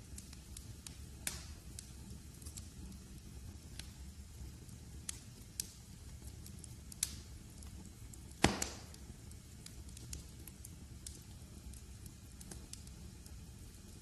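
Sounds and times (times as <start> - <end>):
low steady rumble: 0.0 - 14.0
wood fire crackling: 0.0 - 14.0
sharp fire pops: 0.1 - 4.0, 6.9 - 14.0.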